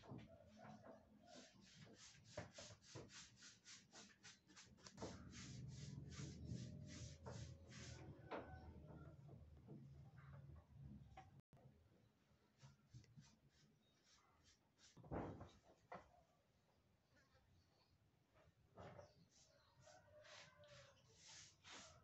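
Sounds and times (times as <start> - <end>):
faint rhythmic scraping: 0.0 - 11.4, 18.3 - 22.0.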